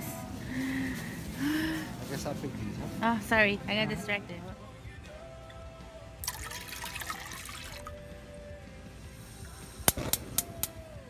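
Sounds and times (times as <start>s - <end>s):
background music: 0.0s - 11.0s
water pouring into metal pot: 6.2s - 8.1s
gas stove igniter clicks: 9.8s - 10.8s.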